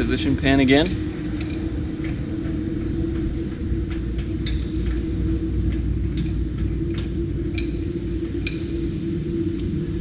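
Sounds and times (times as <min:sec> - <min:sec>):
low hum with held tone: 0:00.0 - 0:10.0.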